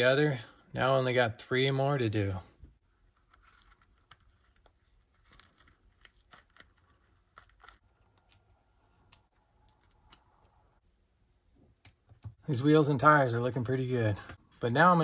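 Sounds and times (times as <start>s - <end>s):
small clicks: 9.0s - 10.7s.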